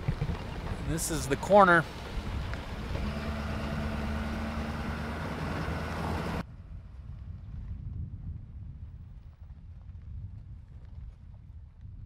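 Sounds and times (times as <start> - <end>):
truck engine and tyre rumble: 0.0 - 11.7.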